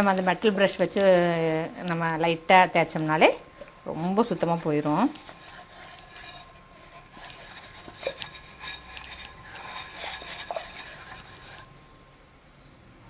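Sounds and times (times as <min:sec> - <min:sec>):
metal scrubber scouring cup: 0:00.0 - 0:01.7, 0:02.9 - 0:11.7.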